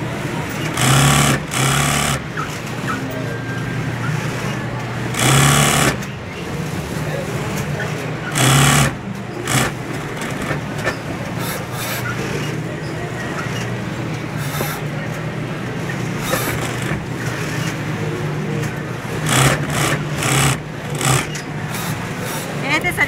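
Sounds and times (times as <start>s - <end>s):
sewing machine motor hum: 0.5s - 2.4s, 5.1s - 6.1s, 8.3s - 10.8s, 16.1s - 17.7s, 19.1s - 22.0s.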